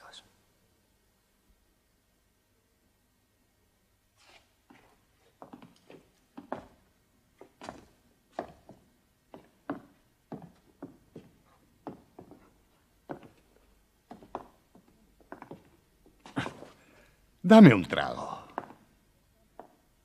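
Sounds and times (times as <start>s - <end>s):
footsteps on wooden boards: 7.4s - 16.8s.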